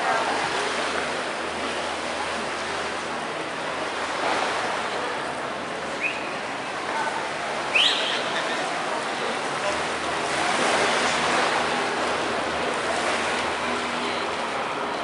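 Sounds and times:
surf and wind rushing: 0:00.0 - 0:15.0.

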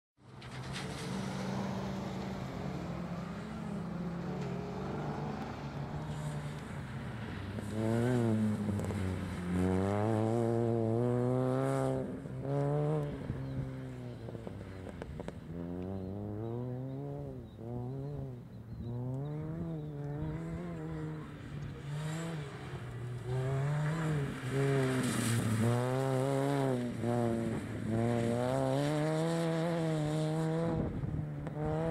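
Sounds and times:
car engine revving: 0:00.4 - 0:31.9.

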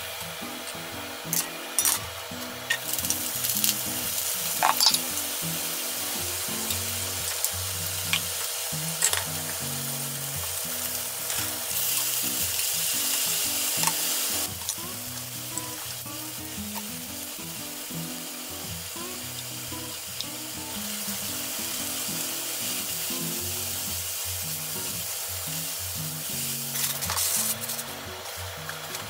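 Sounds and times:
oil sizzling in a pan: 0:00.0 - 0:29.0.

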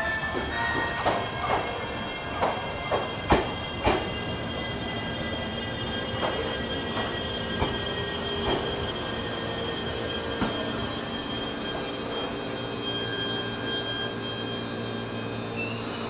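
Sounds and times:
train high-pitched whining: 0:00.0 - 0:16.0.

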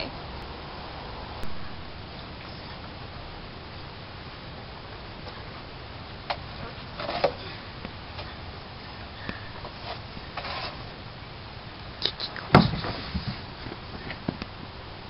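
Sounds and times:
knocks and creaks of wooden playset: 0:06.3 - 0:07.5, 0:09.2 - 0:10.9, 0:12.1 - 0:14.6
body thumping onto plastic slide: 0:12.5 - 0:14.4.

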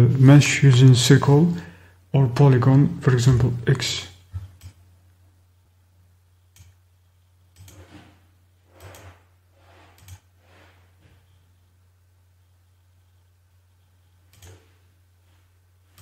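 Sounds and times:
low electrical hum: 0:00.0 - 0:16.0
computer mouse clicks: 0:04.4 - 0:04.8, 0:06.5 - 0:06.8, 0:07.5 - 0:07.9, 0:08.7 - 0:09.2, 0:09.9 - 0:10.3, 0:14.3 - 0:14.6.

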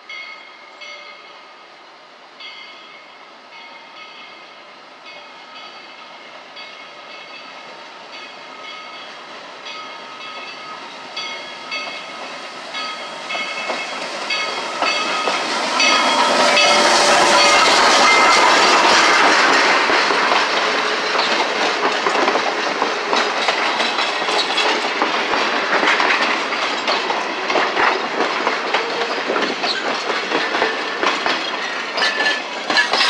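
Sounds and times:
steam locomotive passing: 0:00.0 - 0:33.0.

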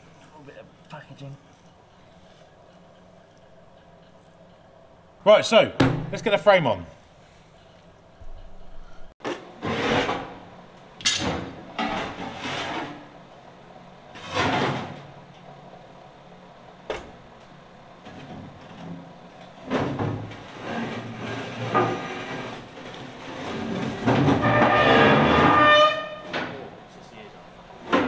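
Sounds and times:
metal scraping and knocking: 0:19.6 - 0:26.6.

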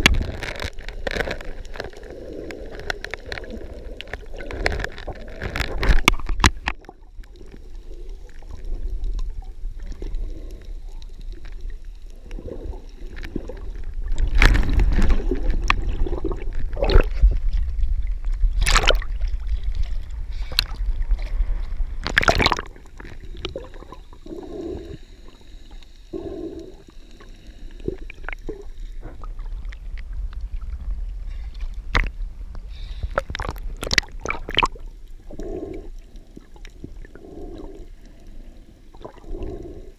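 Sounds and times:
water sloshing and gurgling: 0:00.0 - 0:39.9
sharp water splashes: 0:18.6 - 0:19.1, 0:22.0 - 0:22.8.

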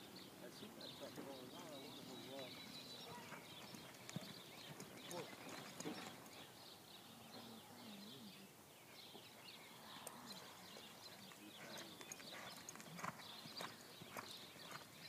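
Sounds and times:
birds chirping: 0:00.0 - 0:15.0
horse hoofbeats on dirt: 0:01.2 - 0:06.5, 0:10.7 - 0:15.0.

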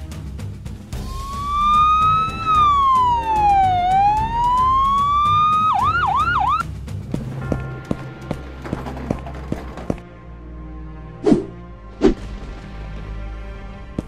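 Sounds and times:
ambulance siren wailing and yelping: 0:01.1 - 0:06.6.

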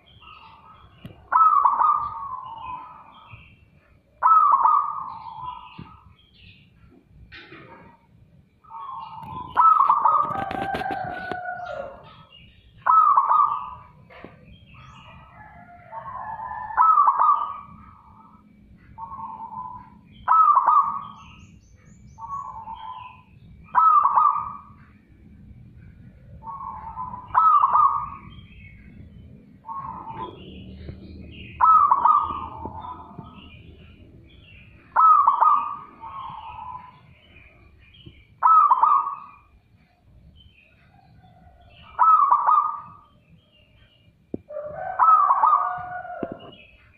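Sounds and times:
dove cooing: 0:00.0 - 0:03.2, 0:04.2 - 0:06.0, 0:08.7 - 0:14.3, 0:15.0 - 0:18.4, 0:19.0 - 0:21.2, 0:22.2 - 0:24.8, 0:26.3 - 0:28.3, 0:29.6 - 0:33.9, 0:34.5 - 0:37.0, 0:38.4 - 0:39.4, 0:40.9 - 0:43.1, 0:44.5 - 0:46.6.

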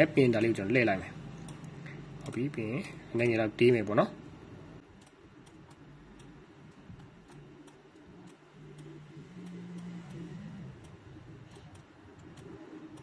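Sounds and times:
low background hum: 0:00.0 - 0:13.0
computer mouse clicking: 0:05.0 - 0:13.0.

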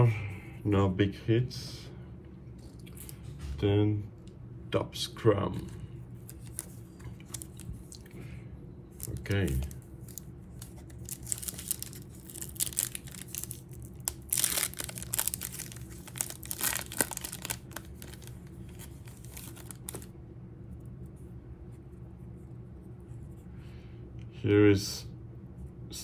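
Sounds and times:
foil wrapper tearing and crinkling: 0:06.3 - 0:08.0, 0:09.0 - 0:20.1.

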